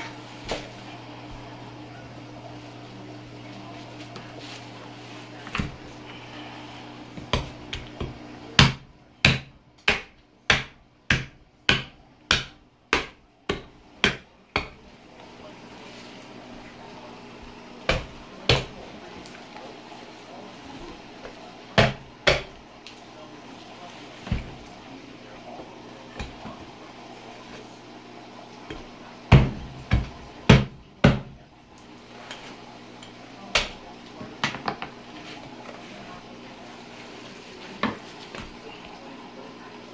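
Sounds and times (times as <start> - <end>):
cleaver chopping on cutting board: 7.2 - 14.8, 17.9 - 18.8, 21.8 - 22.5, 28.7 - 31.3.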